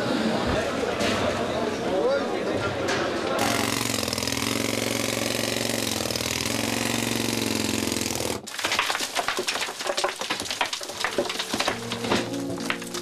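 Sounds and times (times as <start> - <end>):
pick striking rock: 7.6 - 13.0.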